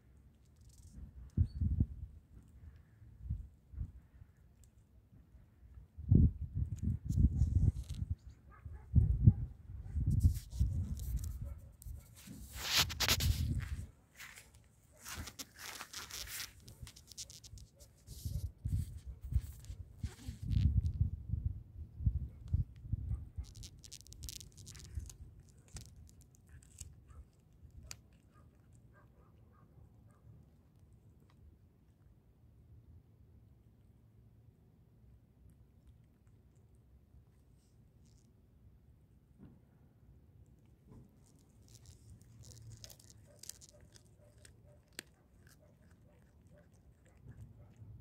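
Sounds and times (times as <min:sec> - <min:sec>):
cat chewing food: 0:23.5 - 0:28.9, 0:35.0 - 0:38.0, 0:40.4 - 0:48.0.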